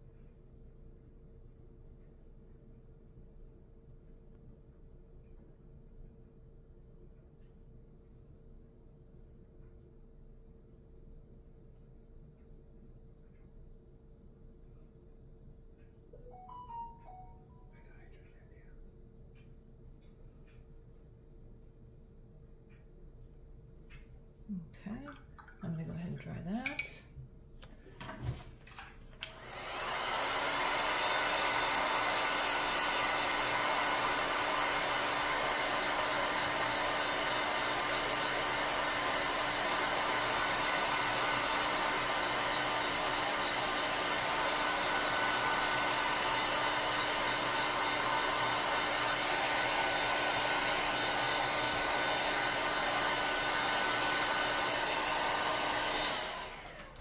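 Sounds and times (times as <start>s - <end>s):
heat gun blowing air: 29.3s - 57.0s.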